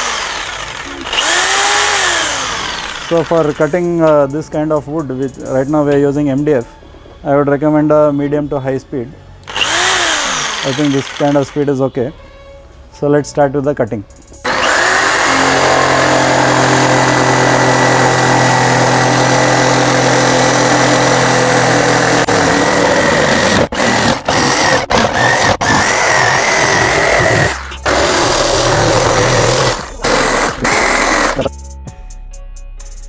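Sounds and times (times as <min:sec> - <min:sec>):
jigsaw cutting board: 0:00.0 - 0:03.7, 0:09.5 - 0:11.5, 0:14.5 - 0:31.5.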